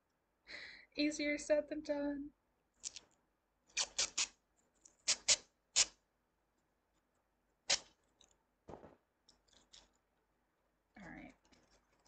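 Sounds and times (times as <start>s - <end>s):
masking tape ripping off roll: 3.7s - 4.4s, 5.0s - 6.0s, 7.7s - 8.0s
tape crinkling: 9.2s - 10.0s.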